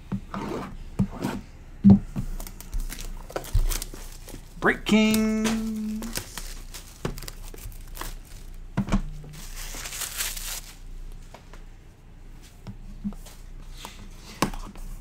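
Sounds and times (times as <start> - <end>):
plastic wrap tearing and crinkling: 2.4 - 8.7, 9.3 - 10.9.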